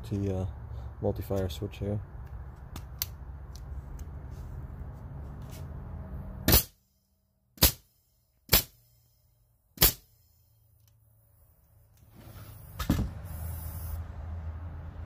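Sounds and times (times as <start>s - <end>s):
nail gun firing into wood: 6.5s - 6.8s, 7.6s - 7.9s, 8.5s - 8.8s, 9.8s - 10.1s.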